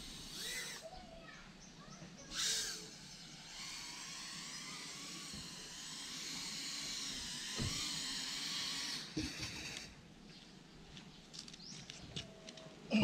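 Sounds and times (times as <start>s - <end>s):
quadcopter motors whining: 0.0s - 1.2s, 1.9s - 10.1s.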